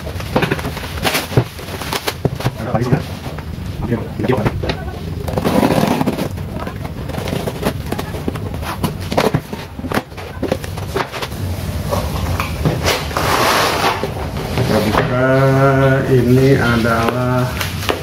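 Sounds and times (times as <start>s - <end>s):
cardboard flaps knocking and scraping: 0.0s - 3.3s, 4.3s - 11.3s
plastic wrap rustling: 0.0s - 18.0s.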